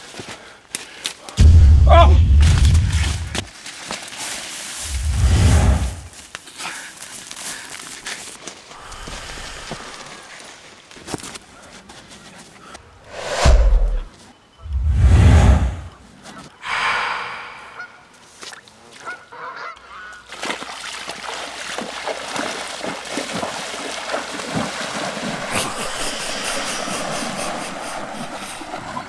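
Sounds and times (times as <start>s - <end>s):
water splashing from wading: 20.3s - 29.0s.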